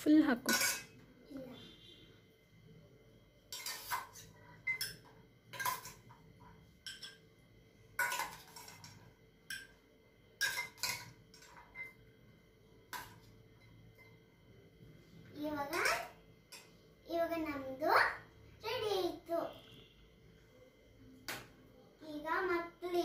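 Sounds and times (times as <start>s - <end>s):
spoon clinking on metal bowl: 0.4s - 1.0s, 3.5s - 6.0s, 6.8s - 7.3s, 8.0s - 9.8s, 10.4s - 12.0s.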